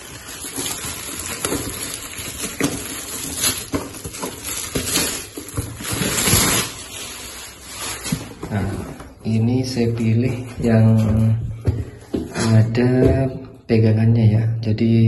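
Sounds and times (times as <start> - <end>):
plastic bag rustling: 0.0 - 9.4.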